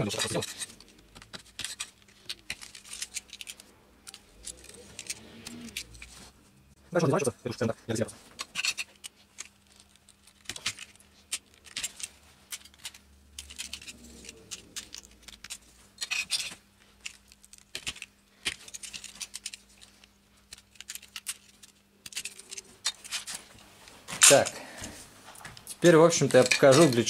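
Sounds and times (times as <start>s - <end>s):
plastic pieces clicking on board: 0.1s - 6.0s, 8.5s - 23.4s.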